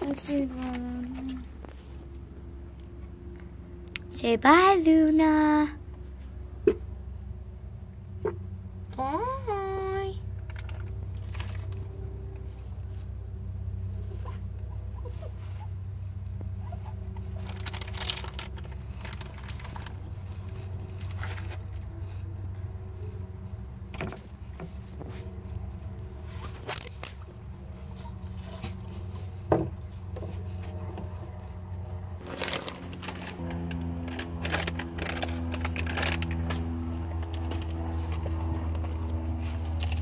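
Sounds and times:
steady low hum: 0:00.0 - 0:40.0
rustles and scratches in bedding: 0:16.6 - 0:33.4.

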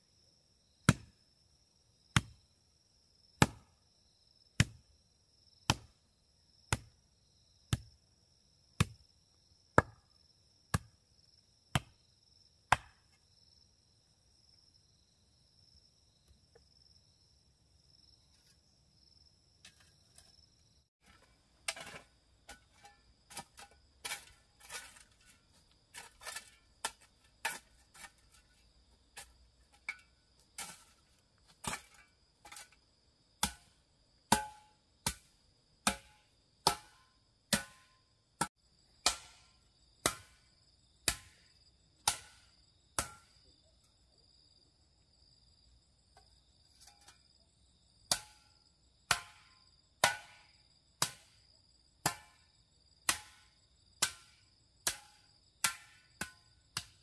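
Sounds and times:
hand tool strikes: 0:34.3 - 0:35.2.

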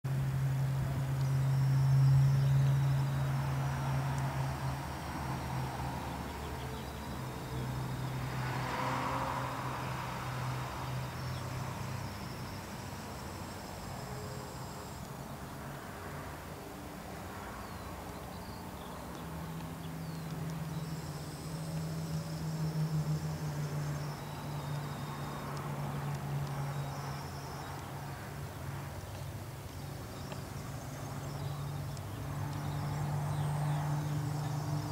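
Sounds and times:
low engine hum: 0:00.0 - 0:34.9
vehicle passing: 0:00.1 - 0:34.9
faint high bird chirps: 0:01.1 - 0:09.6, 0:17.4 - 0:28.2, 0:29.0 - 0:34.9.

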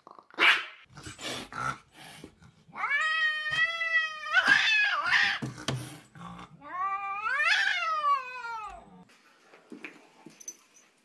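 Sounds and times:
cat yowling: 0:02.7 - 0:05.4, 0:06.6 - 0:09.0.

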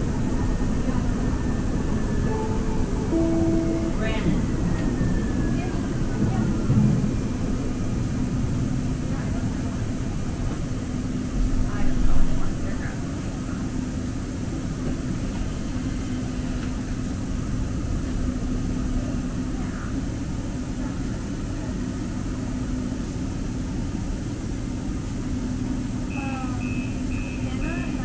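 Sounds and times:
train car rumble and motor hum: 0:00.0 - 0:28.0
short door chime beeps: 0:02.4 - 0:04.4, 0:26.1 - 0:27.9.

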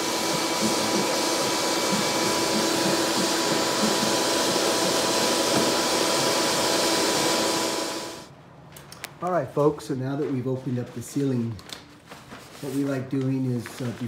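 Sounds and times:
vacuum hiss and motor hum: 0:00.0 - 0:08.3.

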